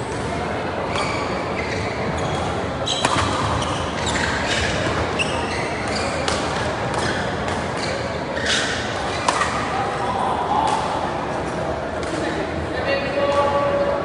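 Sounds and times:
shoes squeaking on court: 0.9 - 9.5
racket striking shuttlecock: 3.0 - 3.6, 6.2 - 7.7, 9.2 - 9.6.

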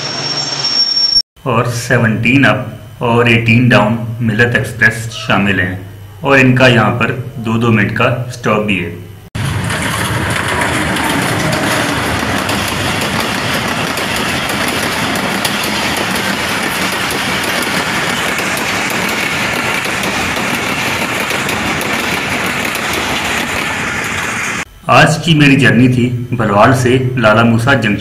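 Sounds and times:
large engine humming: 9.1 - 24.7.

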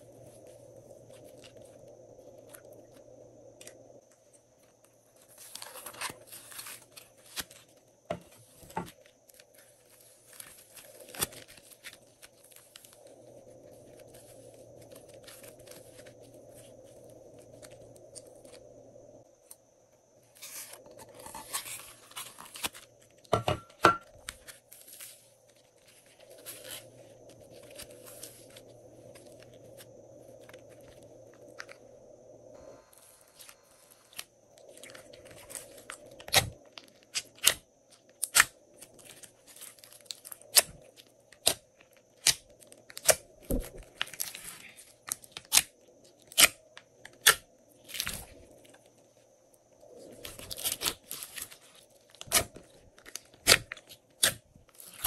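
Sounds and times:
faint steady hum: 0.0 - 55.0
sticky slime crackling and tearing: 50.3 - 55.0.

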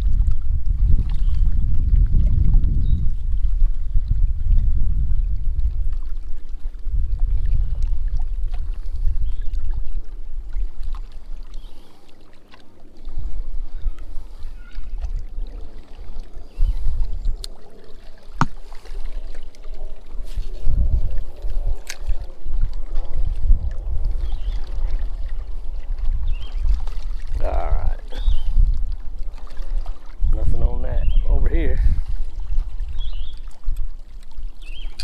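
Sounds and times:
wind buffeting microphone: 0.0 - 11.8, 13.0 - 35.0
water lapping at rocky shore: 0.0 - 35.0.

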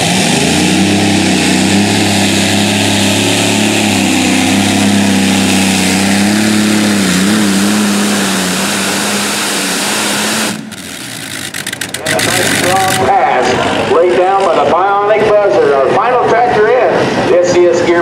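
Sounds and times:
tractor engine droning under load: 0.0 - 15.9.

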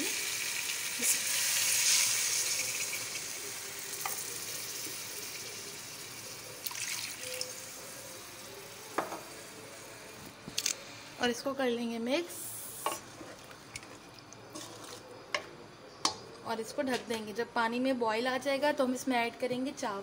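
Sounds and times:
water sizzling in hot oil: 0.0 - 9.5.

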